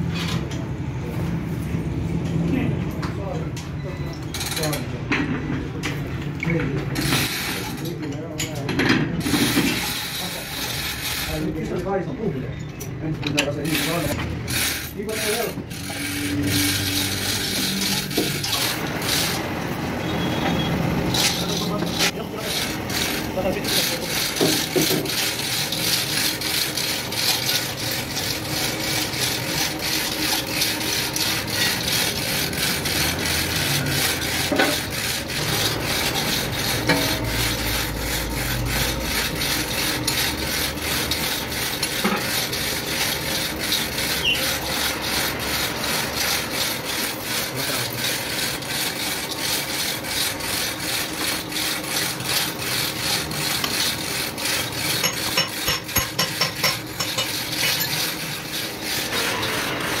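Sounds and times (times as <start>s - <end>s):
hand tool rasping metal: 9.2s - 11.5s, 13.3s - 19.4s, 21.1s - 60.0s.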